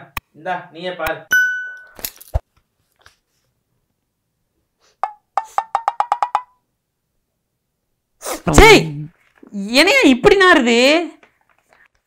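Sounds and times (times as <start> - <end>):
wood block knocks: 5.0 - 6.6.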